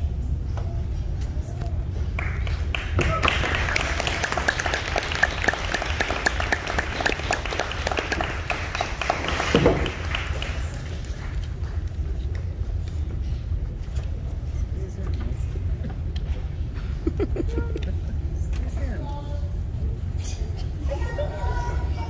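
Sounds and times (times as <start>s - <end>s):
audience applauding: 2.2s - 11.9s.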